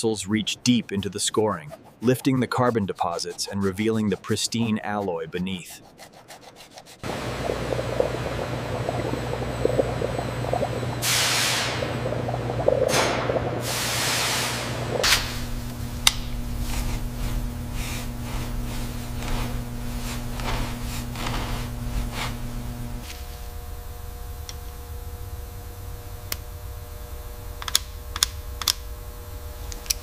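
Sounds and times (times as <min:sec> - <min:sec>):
churning bubbling liquid: 0:07.0 - 0:23.0
electrical hum: 0:07.0 - 0:30.0.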